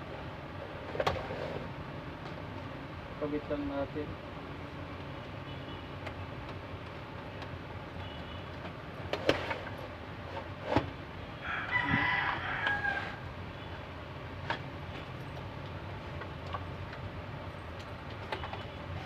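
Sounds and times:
rooster crowing: 11.4 - 13.3.

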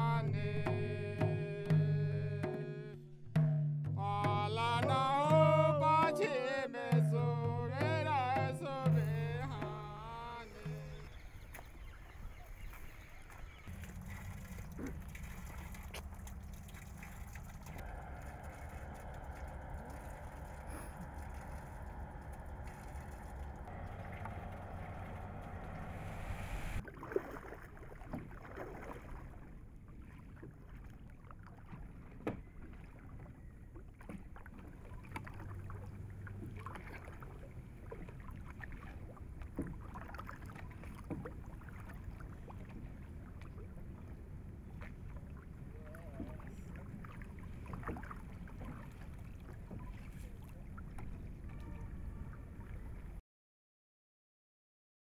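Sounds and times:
oars knocking on hull: 0.0 - 26.8, 31.6 - 33.2, 33.8 - 44.1, 44.8 - 51.7
water splashing: 4.4 - 53.2
low wind rumble: 9.7 - 26.8.

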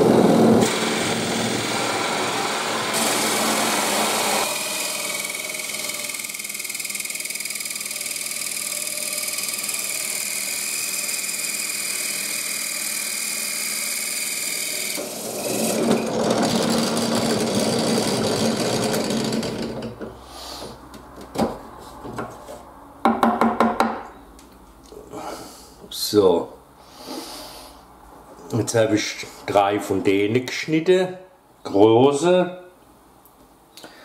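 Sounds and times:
hole saw cutting wood: 0.0 - 19.8
drill press motor whine: 0.0 - 20.0.

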